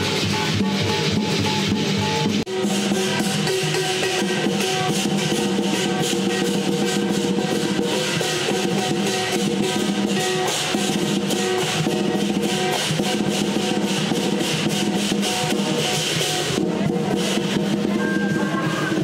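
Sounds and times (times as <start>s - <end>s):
big drum rolls: 0.0s - 19.0s
cymbals clashing: 0.0s - 19.0s
gong ringing: 17.8s - 19.0s.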